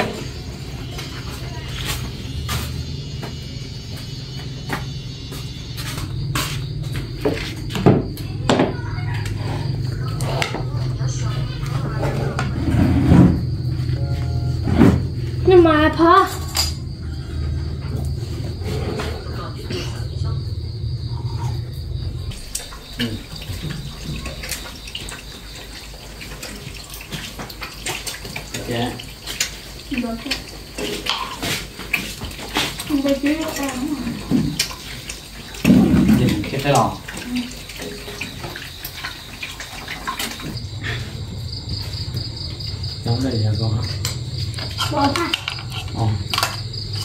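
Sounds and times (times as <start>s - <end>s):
insect trilling: 0.0s - 47.0s
running water: 22.1s - 40.7s.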